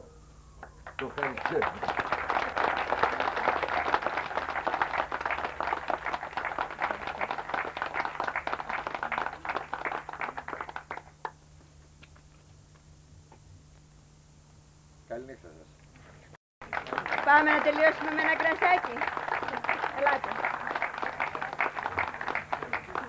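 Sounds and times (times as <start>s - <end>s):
audience applauding: 0.6s - 11.4s, 16.6s - 23.0s.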